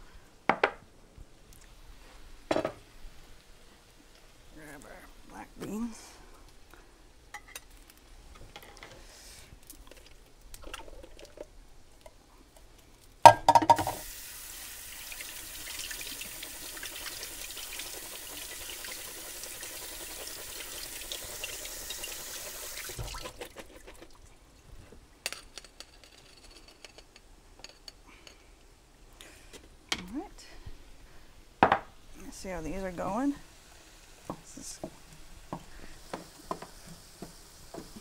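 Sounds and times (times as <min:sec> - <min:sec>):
tap water running into sink: 0:13.5 - 0:23.6, 0:34.2 - 0:38.0.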